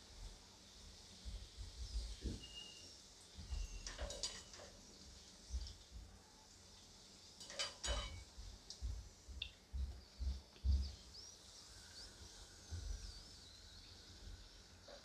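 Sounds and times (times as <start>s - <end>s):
oil sizzling: 0.0s - 9.4s
skimmer clinking on frying pan: 3.8s - 4.7s, 7.4s - 8.3s.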